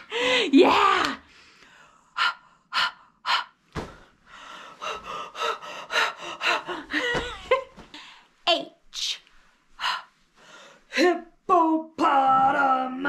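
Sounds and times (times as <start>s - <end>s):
woman huffing and panting: 3.8s - 8.2s.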